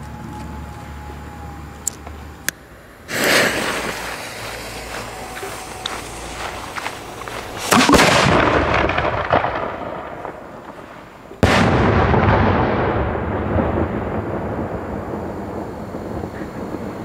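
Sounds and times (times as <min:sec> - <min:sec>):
firework blasts: 0:00.2 - 0:17.0
rolling echo: 0:03.6 - 0:17.0.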